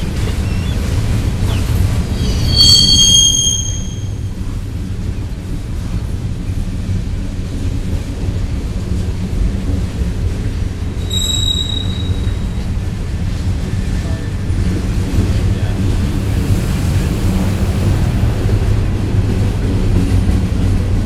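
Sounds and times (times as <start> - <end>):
high wheel squeal: 0.0 - 4.4, 11.0 - 13.0
train wheels rumbling on rail: 0.0 - 21.0.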